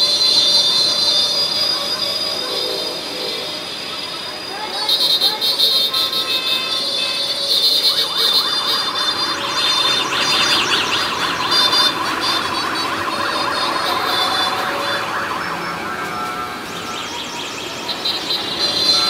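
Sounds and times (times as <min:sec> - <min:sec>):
traffic horns honking: 0:00.0 - 0:19.0
steady high horn tones: 0:02.3 - 0:19.0
electronic horns warbling: 0:06.5 - 0:19.0.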